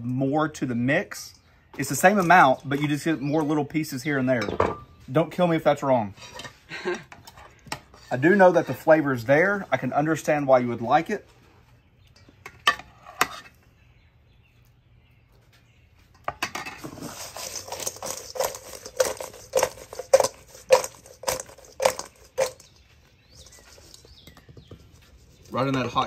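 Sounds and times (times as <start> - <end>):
food sloshing in steel bowl: 16.8 - 24.3.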